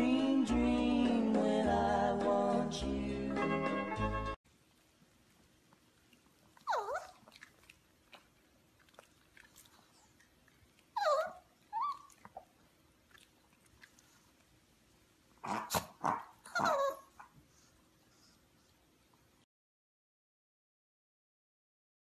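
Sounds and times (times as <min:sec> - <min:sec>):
puppy whining: 0:06.6 - 0:07.4, 0:10.9 - 0:12.5, 0:15.4 - 0:17.4.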